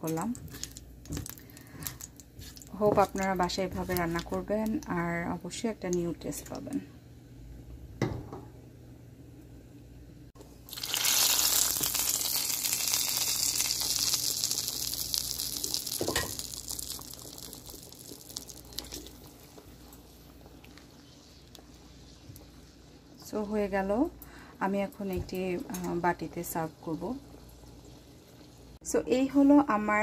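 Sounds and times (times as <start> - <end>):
hot oil sizzling in a pan: 10.7 - 20.3.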